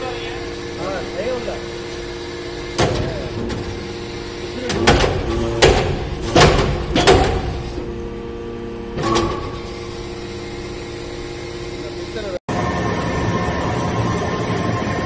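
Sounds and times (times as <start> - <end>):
hydraulic press humming: 0.0 - 15.0
sharp metal knocks and clanks: 4.7 - 7.6.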